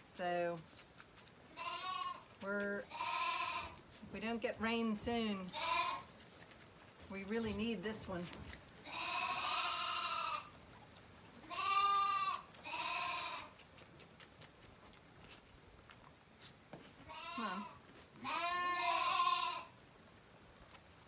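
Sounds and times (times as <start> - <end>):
lambs bleating: 1.5 - 3.9, 5.5 - 6.2, 8.8 - 10.5, 11.4 - 13.6, 17.0 - 19.7.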